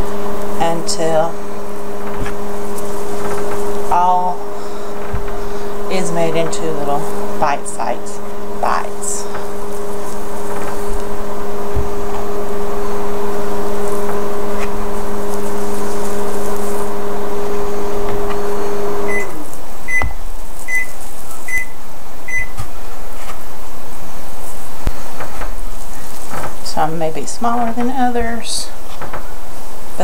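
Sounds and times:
microwave oven humming: 0.0s - 30.0s
short beeps: 21.5s - 22.6s.

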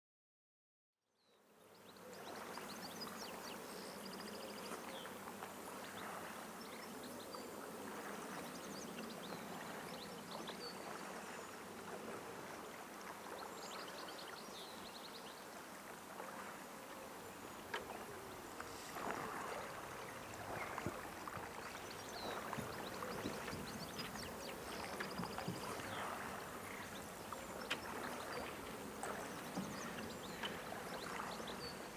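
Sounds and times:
flowing water: 1.5s - 31.9s
water splashes: 7.7s - 31.9s.

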